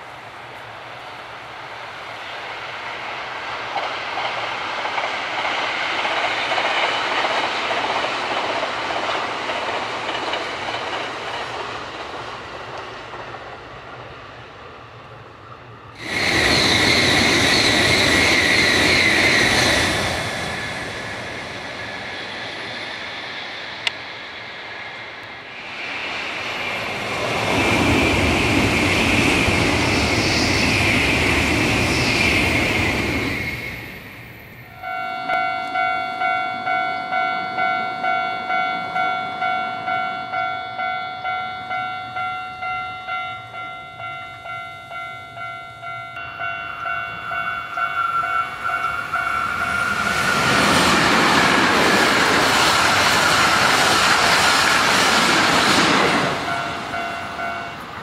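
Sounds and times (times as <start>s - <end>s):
distant train passing: 0.0s - 58.0s
high-speed train passing: 0.0s - 58.0s.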